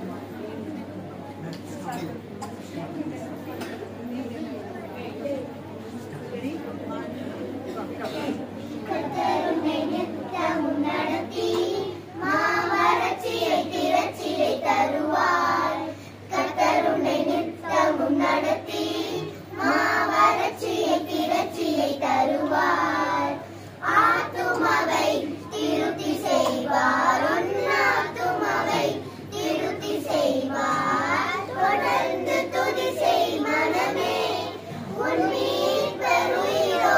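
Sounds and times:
children singing in unison: 8.9s - 36.9s.

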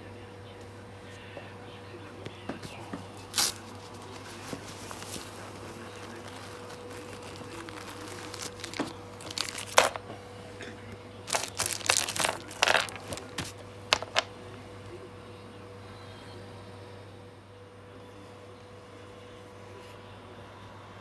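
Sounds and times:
plastic bag crinkling: 4.3s - 10.0s, 11.3s - 14.3s.

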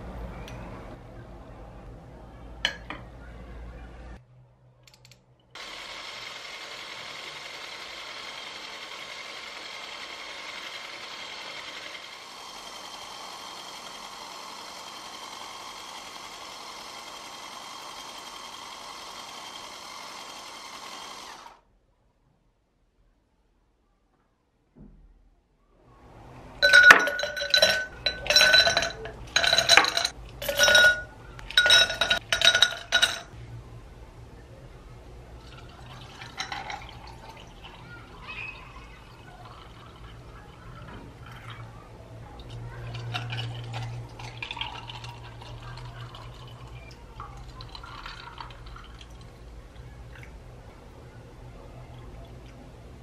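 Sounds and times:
ice cubes clinking into glasses: 26.6s - 33.3s, 35.9s - 37.7s
liquid pouring over ice: 35.4s - 41.7s, 42.8s - 49.4s.

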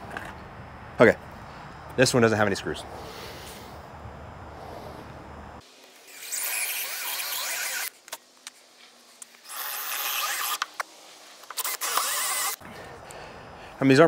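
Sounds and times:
cordless drill boring into wood: 6.0s - 7.9s, 9.4s - 10.6s, 11.5s - 12.6s.

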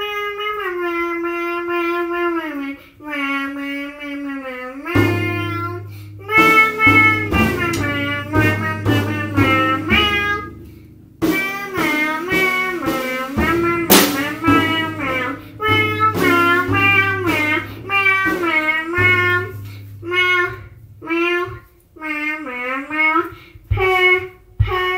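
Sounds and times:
sliding pitched melody: 4.9s - 23.1s
steady low note: 5.0s - 22.1s
sharp hits: 5.9s - 21.5s.

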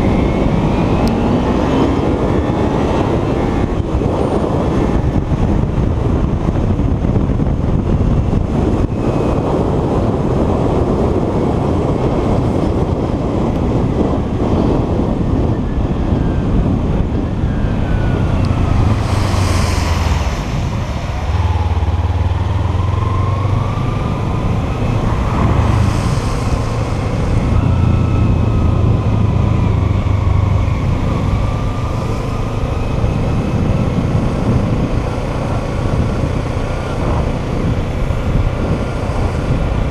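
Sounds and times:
wind and road noise: 0.0s - 39.9s
bus passing hiss: 18.7s - 21.7s, 25.2s - 27.6s.

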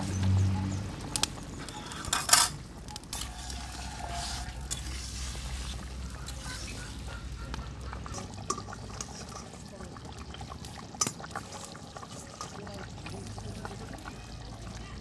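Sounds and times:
ladle clinking and scraping wok: 1.1s - 7.1s, 8.1s - 13.6s.

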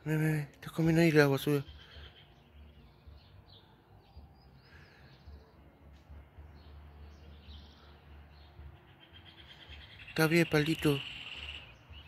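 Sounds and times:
small songbirds chirping: 0.0s - 12.0s.

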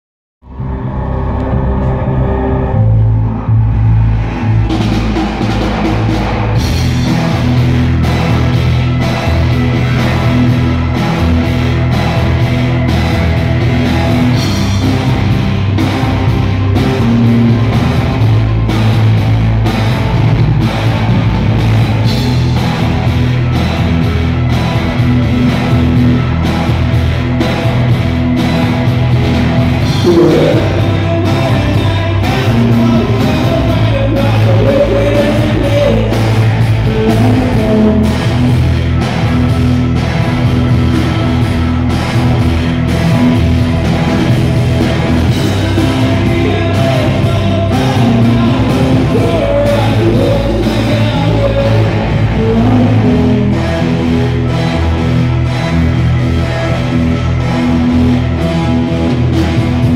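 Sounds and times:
live rock band playing: 0.5s - 59.9s
man singing: 29.9s - 38.5s, 45.5s - 54.2s.

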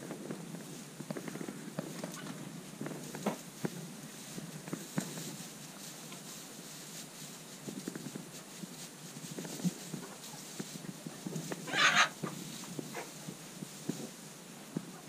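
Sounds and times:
knocks and rustles of hay: 0.0s - 15.0s
sheep munching hay: 0.0s - 15.0s.

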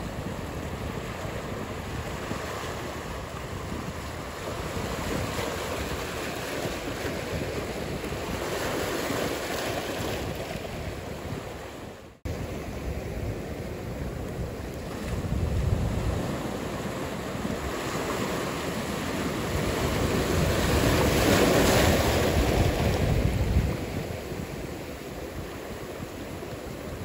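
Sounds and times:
ocean surf: 0.0s - 27.0s
wind noise: 0.0s - 27.0s.

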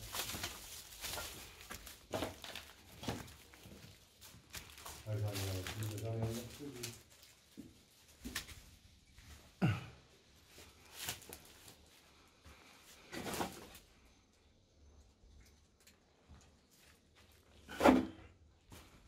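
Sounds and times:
footsteps and scuffs: 0.0s - 9.5s.

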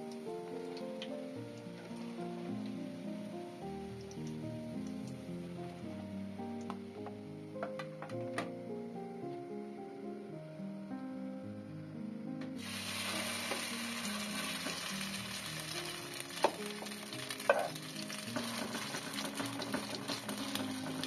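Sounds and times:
food sizzling in hot oil: 12.6s - 21.0s.

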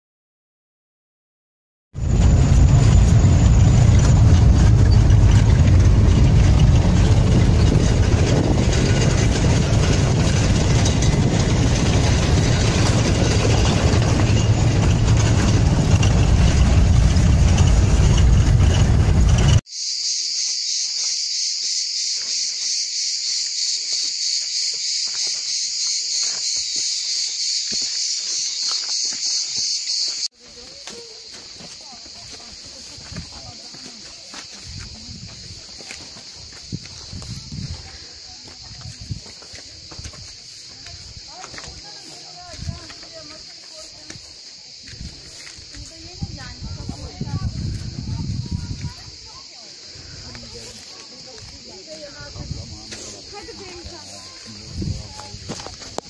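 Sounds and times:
car engine and road noise: 2.0s - 19.7s
insects buzzing: 19.7s - 56.0s.

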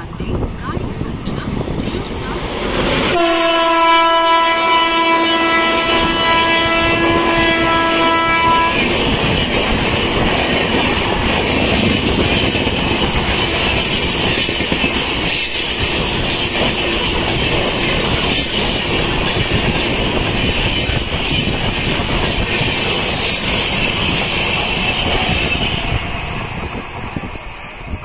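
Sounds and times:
train wheels roaring: 0.0s - 28.0s
locomotive horn blast: 3.1s - 8.9s.

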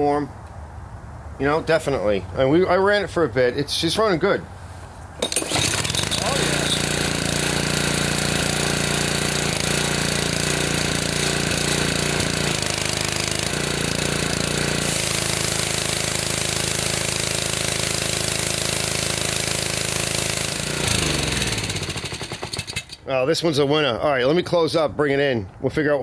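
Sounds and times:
pressure washer engine running: 5.2s - 23.0s
engine spinning down: 5.3s - 23.0s
water spray hiss: 14.8s - 17.0s.

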